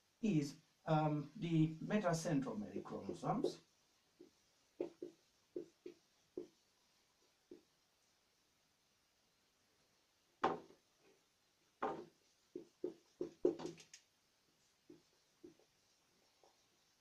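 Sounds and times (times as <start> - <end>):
marker writing on a whiteboard: 2.5 - 7.8, 11.8 - 13.9, 14.6 - 16.8.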